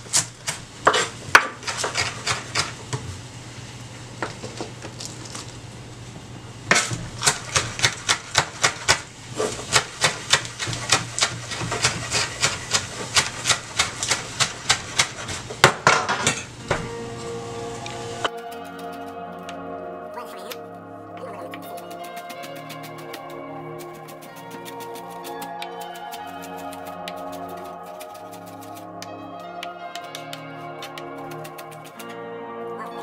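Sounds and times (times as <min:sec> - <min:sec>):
music: 0:16.6 - 0:33.0.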